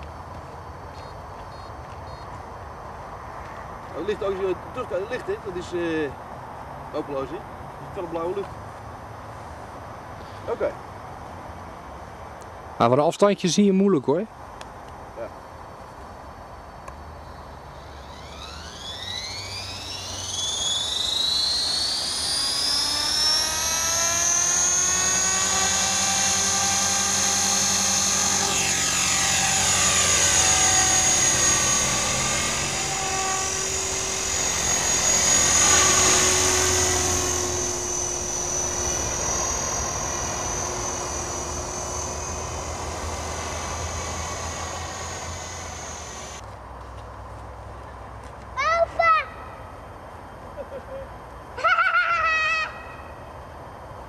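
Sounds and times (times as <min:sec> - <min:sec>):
rc helicopter motor whine: 0:17.4 - 0:46.4.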